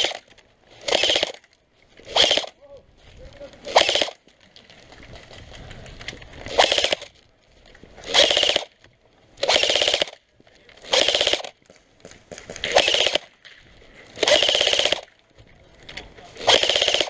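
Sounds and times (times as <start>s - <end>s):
airsoft gun firing full-auto bursts: 0.0s - 1.5s, 2.1s - 2.6s, 3.7s - 4.2s, 6.5s - 7.1s, 8.0s - 8.8s, 9.4s - 10.2s, 10.8s - 11.6s, 12.3s - 13.4s, 14.2s - 15.1s, 16.4s - 17.0s.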